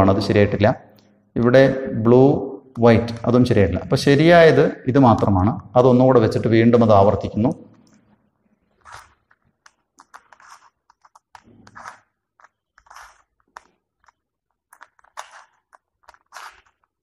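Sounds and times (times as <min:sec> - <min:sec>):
puzzle cube clicking and scraping: 0:07.7 - 0:17.0.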